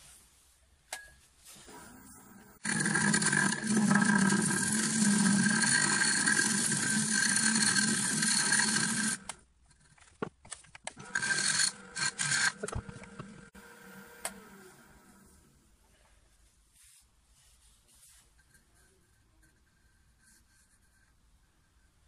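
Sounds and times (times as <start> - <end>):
lathe tool scraping wood: 2.5 - 9.3, 11.0 - 14.0.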